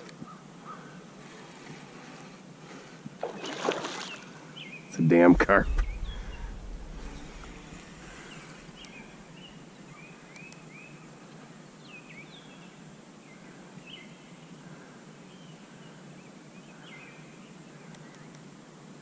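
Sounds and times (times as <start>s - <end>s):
steady outdoor hiss: 0.0s - 19.0s
birds chirping: 3.2s - 11.0s
low rumble: 5.1s - 9.6s.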